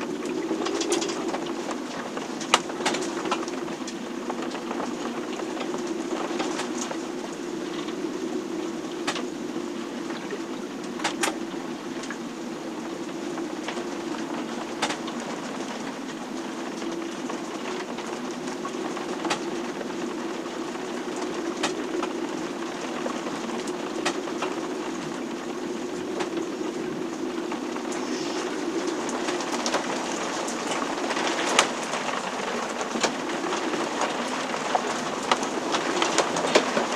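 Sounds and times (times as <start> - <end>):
storm rushing drone: 0.0 - 36.9.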